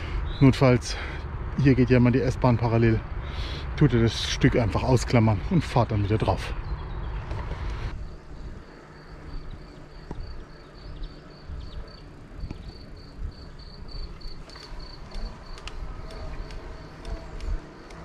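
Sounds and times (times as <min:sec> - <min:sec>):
wind and tyre rumble: 0:00.0 - 0:18.0
cricket chirping: 0:08.0 - 0:18.0.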